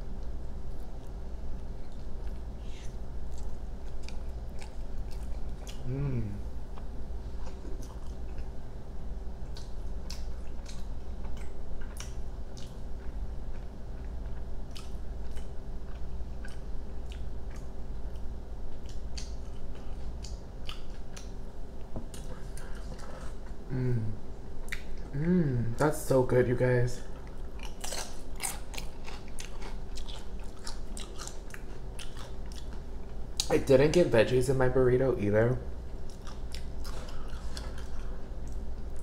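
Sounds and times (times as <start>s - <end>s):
low hum: 0.0s - 39.0s
person humming: 5.8s - 6.4s, 23.7s - 24.2s, 25.1s - 25.8s
mouth chewing food: 9.4s - 21.3s, 27.2s - 33.5s.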